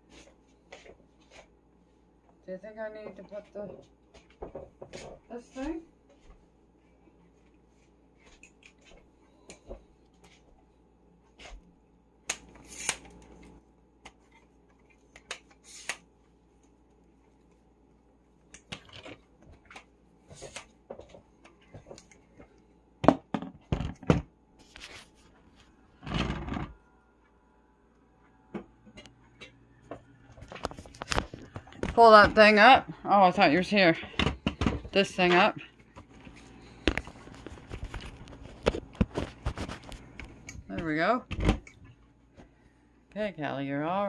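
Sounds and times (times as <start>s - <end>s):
hands handling things: 35.8s - 40.6s.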